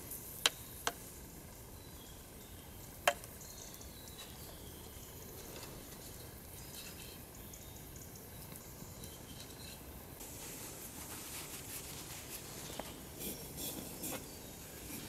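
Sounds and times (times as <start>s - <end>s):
campfire hissing: 0.0s - 15.0s.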